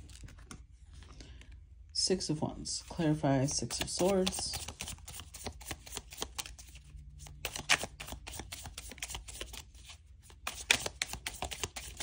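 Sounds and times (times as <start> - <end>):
cards being shuffled: 3.4 - 12.0.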